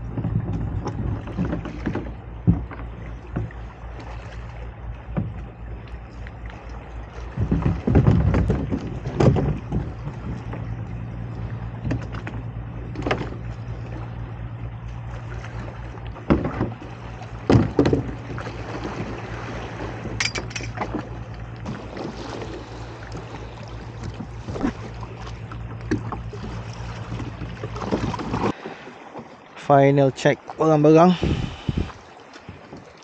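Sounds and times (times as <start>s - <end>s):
steady low rumble: 0.0s - 18.7s, 31.1s - 32.0s
sea water washing against rocks: 16.7s - 29.1s
camping gear knocking and clattering: 20.2s - 21.0s.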